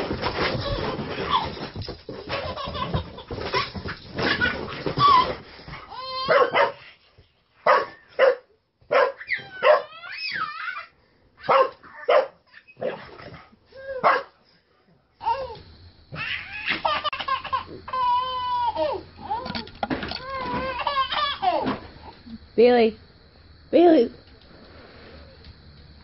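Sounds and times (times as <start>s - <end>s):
dog barking: 6.3s - 6.8s, 7.6s - 9.9s, 11.4s - 13.0s, 14.0s - 14.4s.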